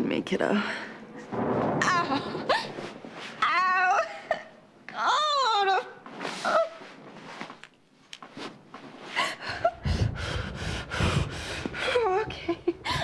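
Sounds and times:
low rumble: 1.1s - 3.2s
woman panting: 9.1s - 13.0s.

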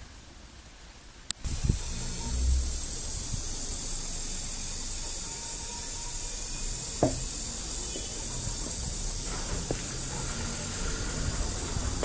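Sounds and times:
high-pitched background hiss: 0.0s - 12.0s
low rumble: 1.4s - 5.2s
sharp knock: 7.0s - 7.2s.

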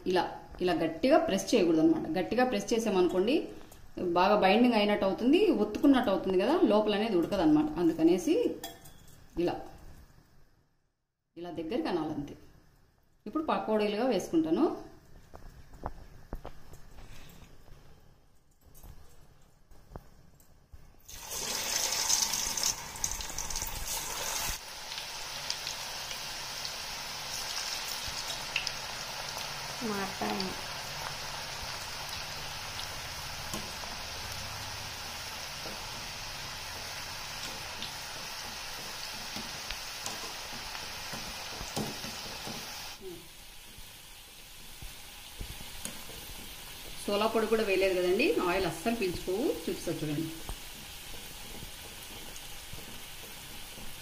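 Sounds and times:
food sizzling in hot oil: 21.0s - 54.0s.

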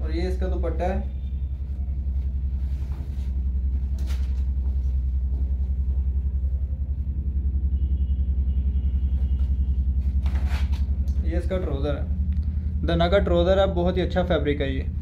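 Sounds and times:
pulsing machine hum: 0.0s - 15.0s
cloth rustling: 1.7s - 5.8s.

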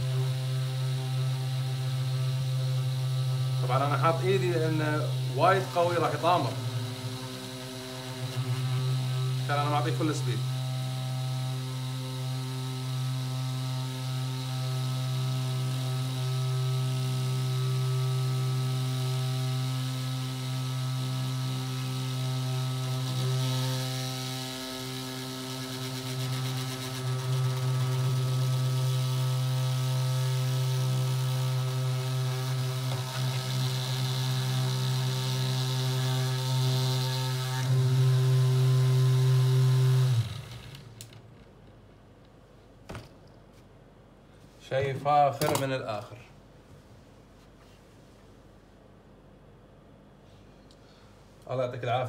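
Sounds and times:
small electric motor hum: 0.0s - 41.2s.

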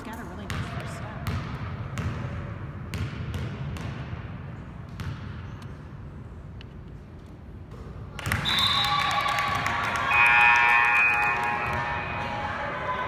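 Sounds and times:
basketball bouncing on gym floor: 0.1s - 5.6s.

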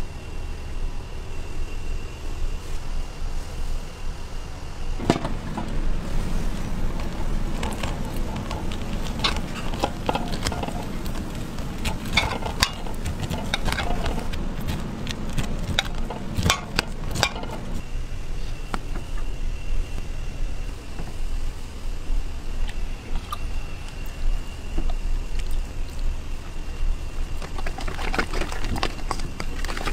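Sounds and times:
steady low rumble: 0.0s - 29.9s
corn kernels clicking and cracking: 5.0s - 17.9s, 27.0s - 29.9s.

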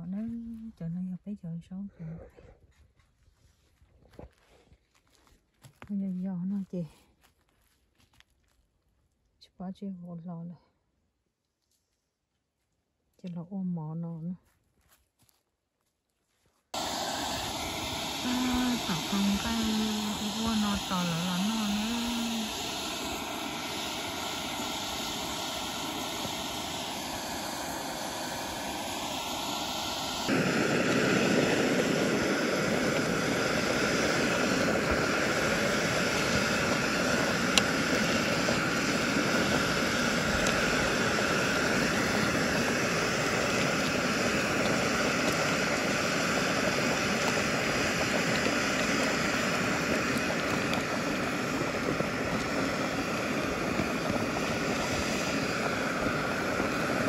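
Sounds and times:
gas burner roaring: 16.8s - 57.0s.

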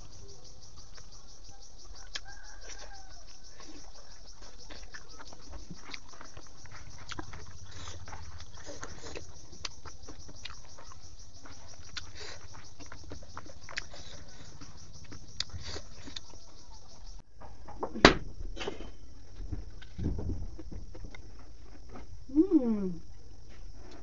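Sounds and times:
wet chewing smacks: 3.6s - 16.4s.

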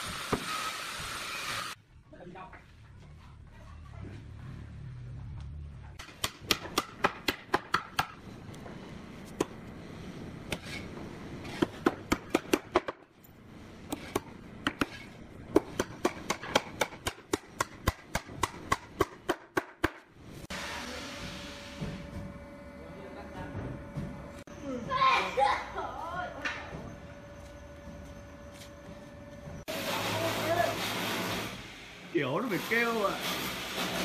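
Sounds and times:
hammer striking wood: 6.0s - 8.2s, 13.9s - 20.1s.

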